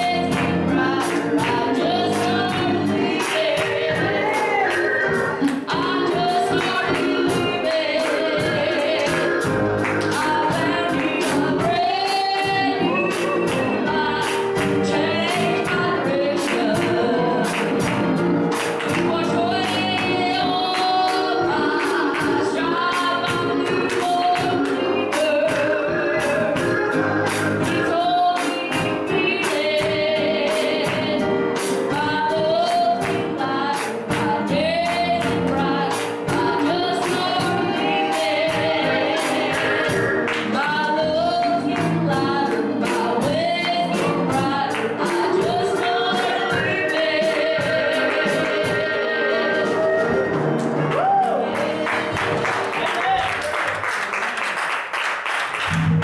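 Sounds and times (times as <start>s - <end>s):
gospel singing with accompaniment: 0.0s - 54.3s.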